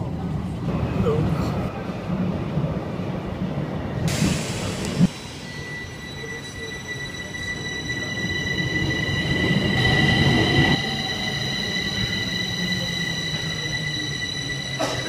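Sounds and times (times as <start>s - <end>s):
train rumble: 0.0s - 15.0s
high-pitched whine: 4.5s - 15.0s.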